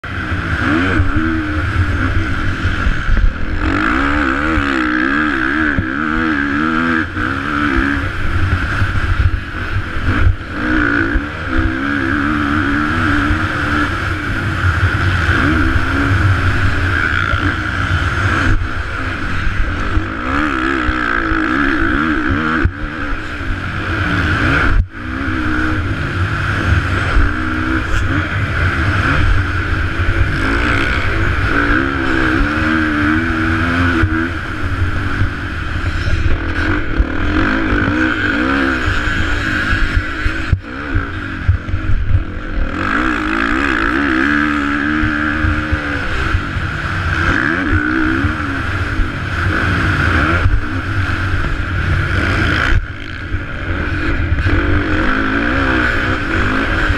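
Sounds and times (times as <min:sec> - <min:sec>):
motocross bike engine revving: 0:00.0 - 0:56.9.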